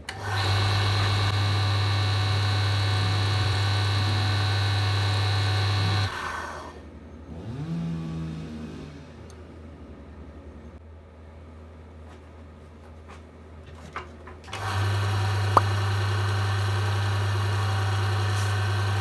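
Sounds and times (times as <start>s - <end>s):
lathe motor humming: 0.1s - 6.7s, 14.6s - 19.0s.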